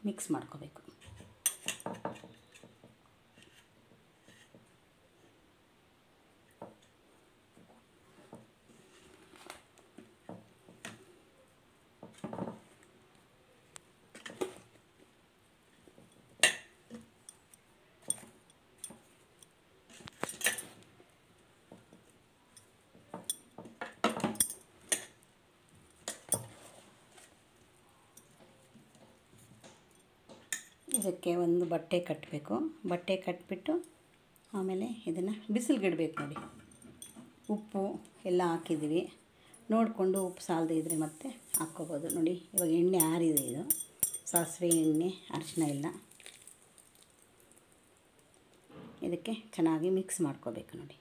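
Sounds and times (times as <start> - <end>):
spoon scraping steel bowl: 40.2 - 45.7.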